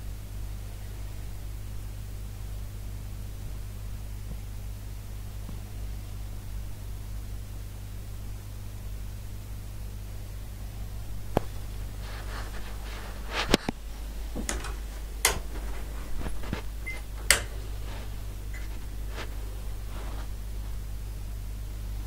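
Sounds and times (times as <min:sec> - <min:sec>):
low hum and hiss: 0:00.0 - 0:22.0
sharp knocks and clicks: 0:14.4 - 0:17.7.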